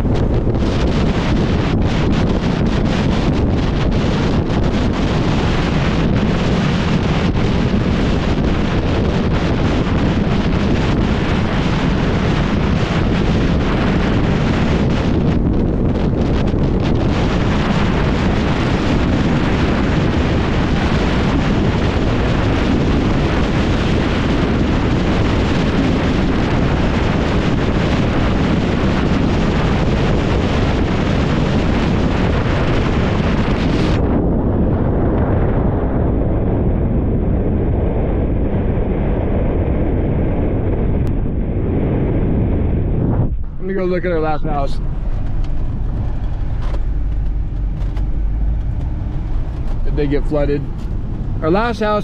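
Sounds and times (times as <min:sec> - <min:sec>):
vehicle rumble: 0:00.0 - 0:23.5, 0:37.7 - 0:52.0
wind buffeting microphone: 0:00.0 - 0:52.0.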